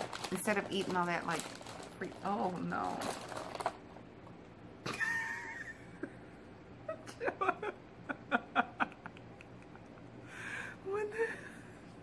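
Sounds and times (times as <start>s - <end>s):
plastic packaging crinkling: 0.0s - 4.4s
people laughing: 7.0s - 10.0s.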